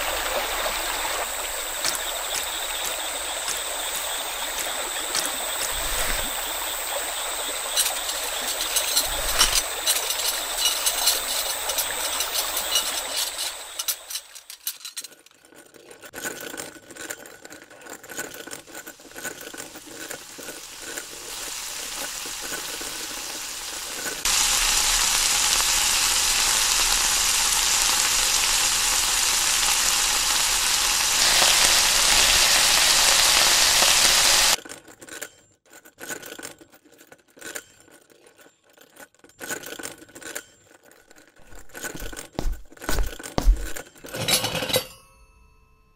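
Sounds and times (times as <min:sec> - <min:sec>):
frying sizzle: 0:00.0 - 0:14.0, 0:19.7 - 0:34.6
running water: 0:00.0 - 0:14.7, 0:18.7 - 0:34.6, 0:41.4 - 0:43.8.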